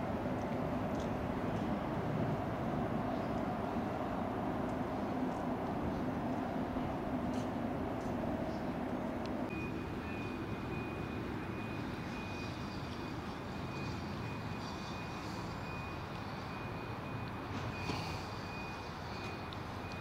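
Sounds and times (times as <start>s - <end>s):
low engine hum: 0.0s - 20.0s
reversing alarm beeping: 9.5s - 20.0s.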